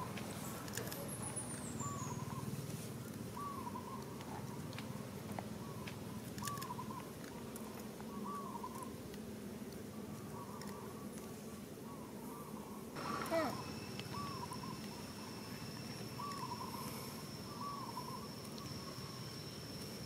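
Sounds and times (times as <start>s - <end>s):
arched animal calls: 12.4s - 19.2s
high falling chirp: 13.0s - 20.0s.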